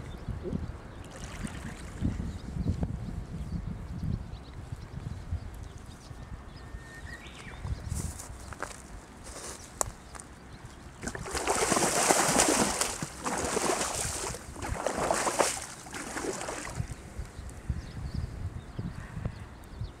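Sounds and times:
water splashing: 0:01.0 - 0:02.0, 0:11.0 - 0:17.0.

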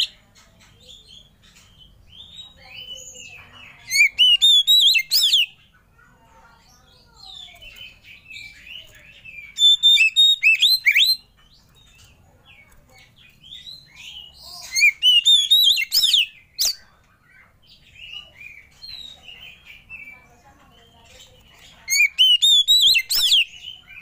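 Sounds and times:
soft bird chirps: 0:00.0 - 0:24.0
bird singing whistled phrases: 0:03.9 - 0:05.6, 0:09.3 - 0:11.2, 0:13.6 - 0:16.8, 0:21.9 - 0:24.0.

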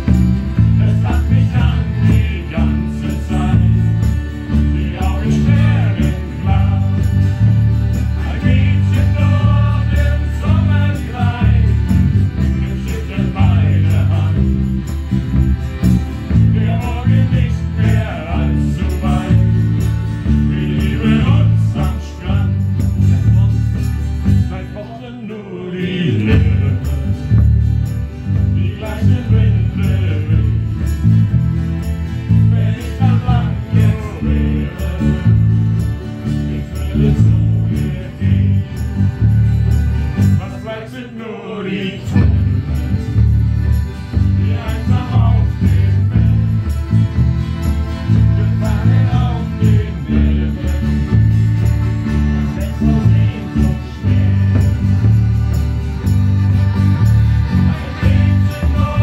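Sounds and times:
bass drum: 0:00.0 - 0:24.5, 0:26.2 - 0:40.4, 0:42.2 - 0:59.0
electric bass: 0:00.0 - 0:25.1, 0:25.7 - 0:41.1, 0:41.7 - 0:59.0
accordion: 0:00.0 - 0:59.0
guitars: 0:00.0 - 0:59.0
voices singing: 0:00.0 - 0:59.0
ukulele: 0:42.1 - 0:59.0.

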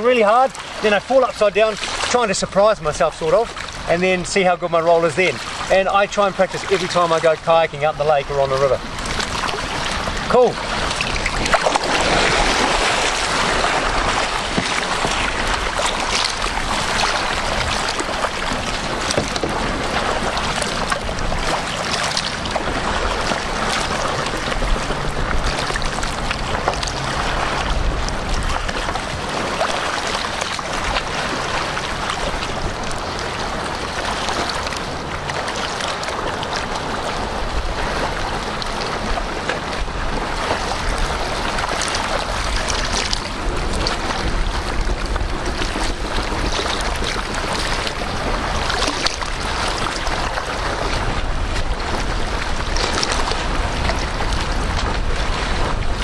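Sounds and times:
paddle strokes splashing water: 0:00.0 - 0:56.0
water washing: 0:00.0 - 0:56.0
wind noise: 0:36.2 - 0:56.0.

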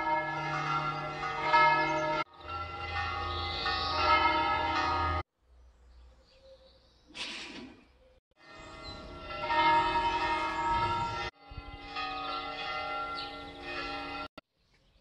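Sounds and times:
bells ringing: 0:00.0 - 0:05.3, 0:08.4 - 0:14.4
bird chirping: 0:03.2 - 0:04.1, 0:05.5 - 0:07.2.

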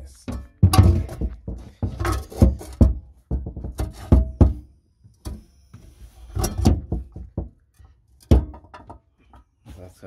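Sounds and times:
ice tank knocks and thumps: 0:00.0 - 0:05.5, 0:06.3 - 0:07.6, 0:08.2 - 0:09.4.

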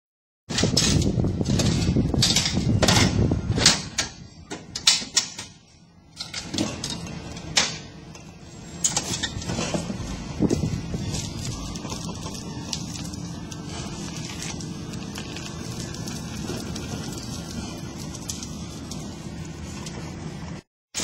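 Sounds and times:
metal clanks and knocks: 0:00.5 - 0:05.6
hand truck rattling over paving: 0:08.8 - 0:18.4.

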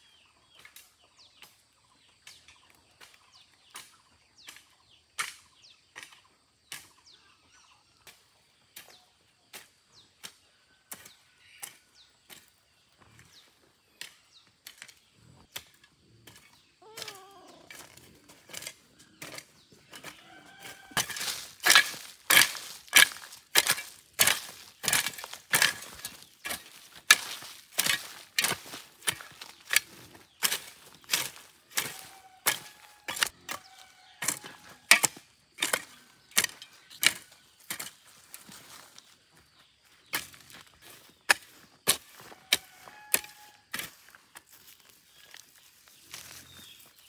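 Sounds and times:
faint chirps: 0:06.8 - 0:20.4
rhythmic chopping strikes: 0:20.9 - 0:38.0.

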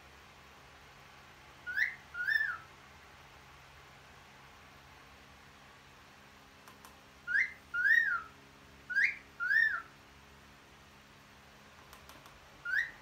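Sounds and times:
cockatiel wolf whistling: 0:01.6 - 0:02.6, 0:07.3 - 0:08.3, 0:08.9 - 0:09.9, 0:12.6 - 0:13.0.

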